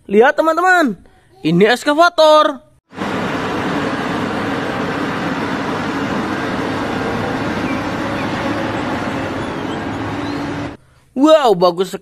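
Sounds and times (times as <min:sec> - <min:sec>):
heavy diesel engine: 0:02.9 - 0:10.8.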